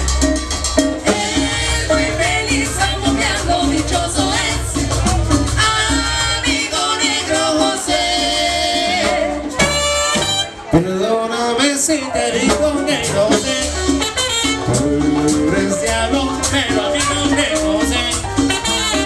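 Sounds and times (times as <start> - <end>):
cumbia band with horns: 0.0 - 19.0
lead singer: 1.0 - 9.6, 10.7 - 14.0, 14.6 - 19.0.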